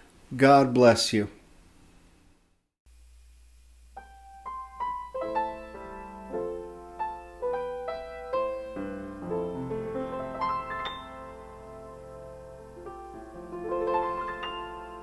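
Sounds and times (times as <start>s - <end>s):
solo piano: 4.0s - 15.0s.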